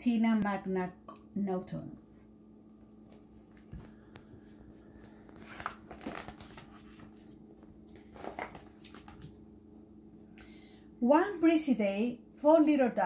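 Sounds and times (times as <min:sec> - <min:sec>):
steady low hum: 0:00.0 - 0:13.0
pages rustling: 0:03.1 - 0:09.4.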